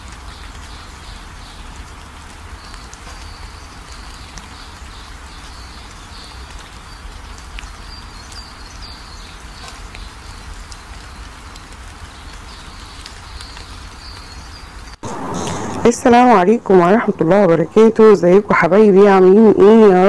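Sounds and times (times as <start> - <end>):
low hum: 15.0 - 18.8.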